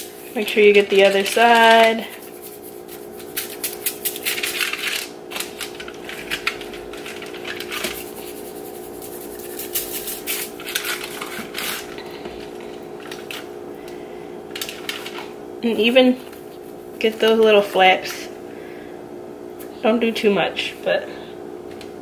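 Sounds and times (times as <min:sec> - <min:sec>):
foil crinkling: 0:00.0 - 0:13.5.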